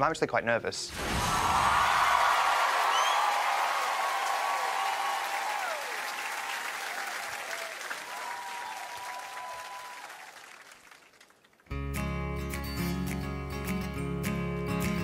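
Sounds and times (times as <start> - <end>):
audience applauding: 1.3 - 11.7.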